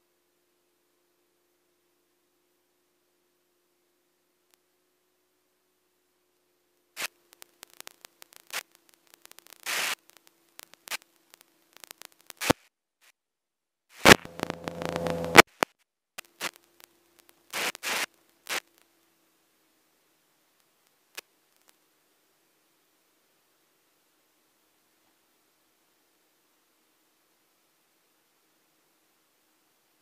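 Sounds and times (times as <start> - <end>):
faint steady hum: 0.0 - 12.3, 14.0 - 15.5, 16.2 - 30.0
crackling headset static: 6.6 - 12.7, 13.9 - 22.3
loud buzzing: 14.0 - 15.4.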